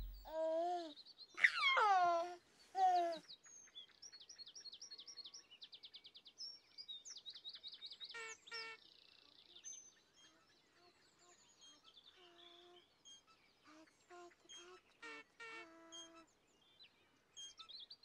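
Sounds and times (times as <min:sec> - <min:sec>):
baby giggling: 0:00.0 - 0:03.2
songbirds chirping and trilling: 0:00.9 - 0:18.0.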